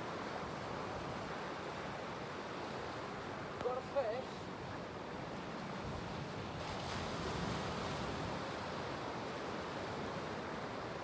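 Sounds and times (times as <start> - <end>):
waves washing over rocky shore: 5.6 - 11.0.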